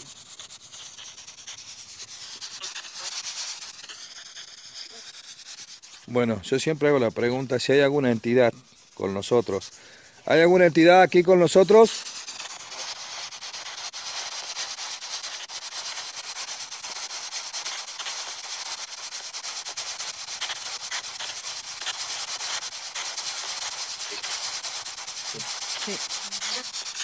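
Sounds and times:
radio static hiss: 6.0 - 16.8, 19.9 - 27.0.

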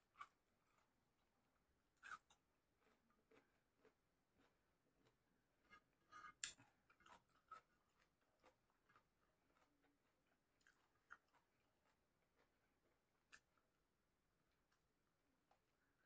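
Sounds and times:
person chewing: 0.1 - 0.9, 2.0 - 13.7.

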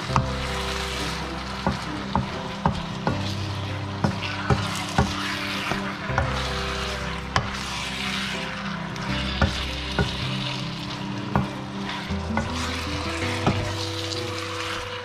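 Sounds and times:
meat and onion sizzling in pan: 0.0 - 15.0
wooden spoon knocking on pan: 1.6 - 6.5, 9.3 - 10.3, 12.3 - 13.8.

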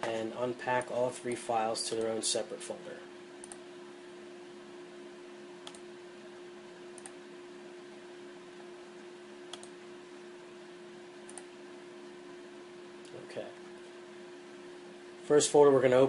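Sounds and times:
steady hum and hiss: 0.0 - 16.0
computer mouse clicking: 1.9 - 2.2, 3.4 - 3.6, 5.6 - 5.8, 6.9 - 7.2, 9.5 - 9.8, 11.2 - 11.5.

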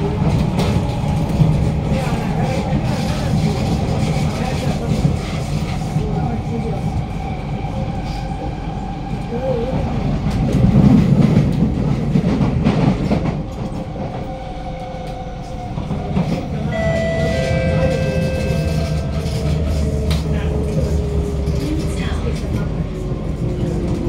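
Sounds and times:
train wheels rumbling on track: 0.0 - 24.0.

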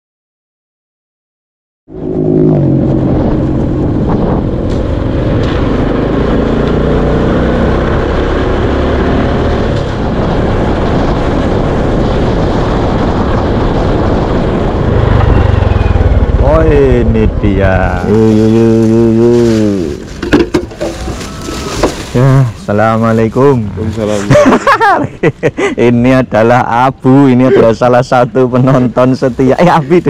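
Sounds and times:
wind rush on microphone: 1.9 - 30.0
scooter engine: 14.8 - 18.3, 19.9 - 22.2.

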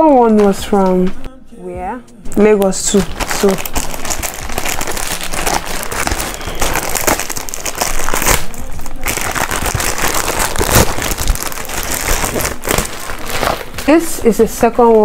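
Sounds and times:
plastic mailer bag crinkling: 2.8 - 15.0.

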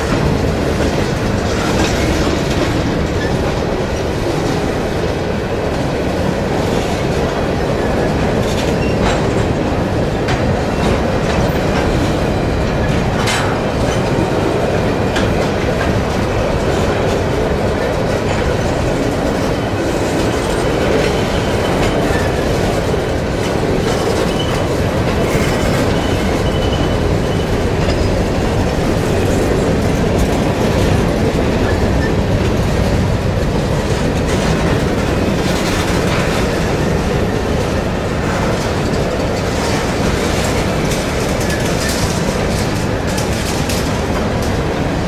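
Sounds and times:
train wheels rumbling on rail: 0.0 - 45.0
wheel clatter: 38.3 - 44.6.

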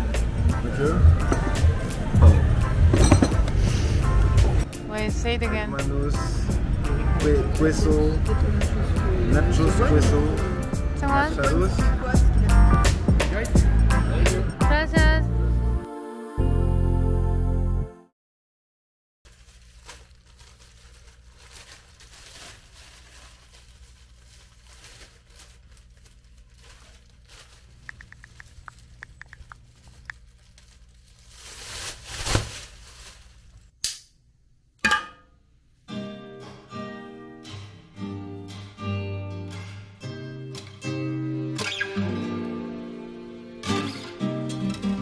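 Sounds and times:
plastic bin bag rustling: 19.3 - 33.7
plucked acoustic guitar music: 35.9 - 45.0.

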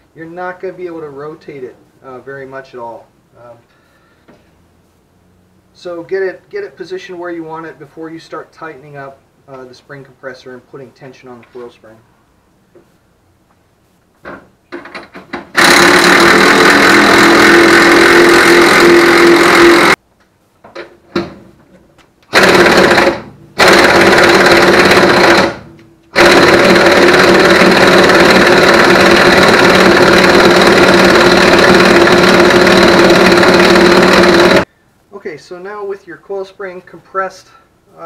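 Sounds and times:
pneumatic impact wrench hammering: 14.7 - 20.0, 22.3 - 34.7.

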